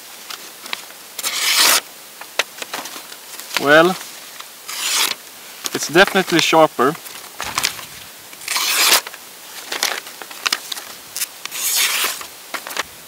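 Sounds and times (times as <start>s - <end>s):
knife slicing paper: 1.2s - 1.8s, 4.7s - 5.2s, 8.4s - 9.1s, 9.7s - 12.8s
paper rustling: 2.6s - 13.0s.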